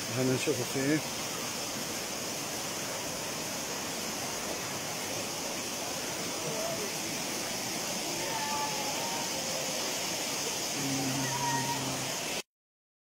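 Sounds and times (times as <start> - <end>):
waterfall rushing: 0.0 - 12.4
faint voices: 6.1 - 7.2, 7.8 - 12.4.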